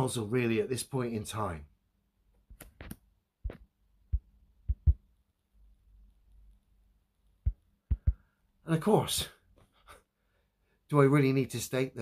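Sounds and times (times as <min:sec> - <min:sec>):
fingers tapping phone screen: 0:02.5 - 0:05.1, 0:07.4 - 0:08.2.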